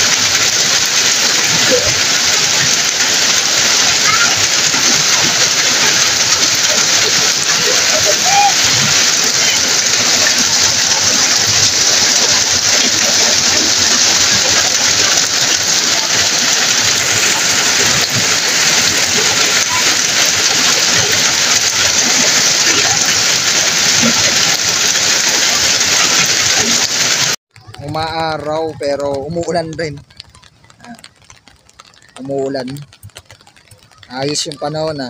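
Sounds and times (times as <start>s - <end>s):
heavy rain pouring: 0.0s - 35.0s.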